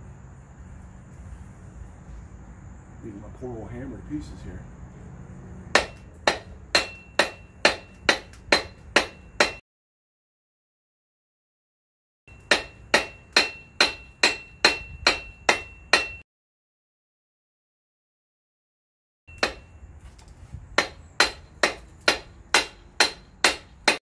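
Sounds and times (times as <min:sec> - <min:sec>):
hammer blows on steel: 0:05.8 - 0:09.6, 0:12.3 - 0:16.2.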